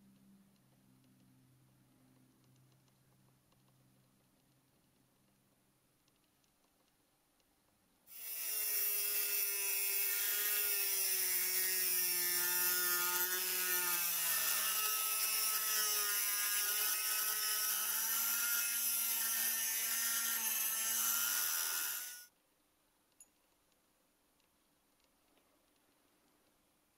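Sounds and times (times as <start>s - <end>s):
abrasive disc grinding steel: 8.1s - 22.3s
rotary tool motor whining: 8.1s - 22.3s.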